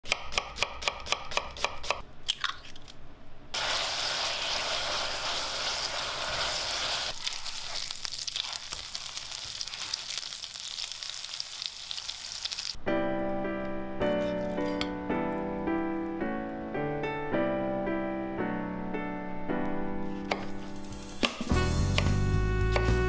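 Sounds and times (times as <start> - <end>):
onions sizzling in frying pan: 3.6 - 12.8
patties sizzling and crackling: 3.6 - 12.8
knife chopping on wooden board: 20.2 - 20.6.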